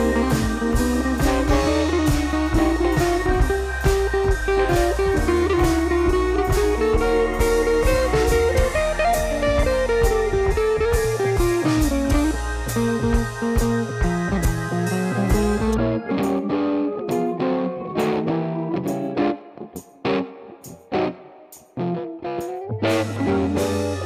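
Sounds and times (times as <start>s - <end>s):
steady drum beat: 0.0s - 16.4s, 22.8s - 24.0s
bass: 0.0s - 19.4s, 22.5s - 24.0s
blues electric guitar melody: 0.0s - 24.0s.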